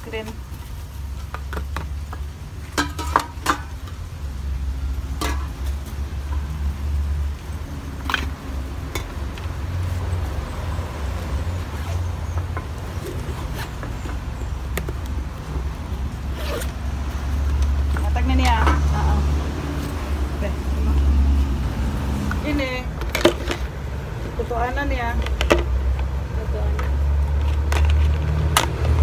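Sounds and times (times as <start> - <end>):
tins and containers clinking: 1.1 - 4.1, 5.1 - 6.5, 7.8 - 10.1, 17.4 - 19.2, 22.3 - 29.0
bag zipper closing: 13.0 - 13.8, 16.3 - 16.9.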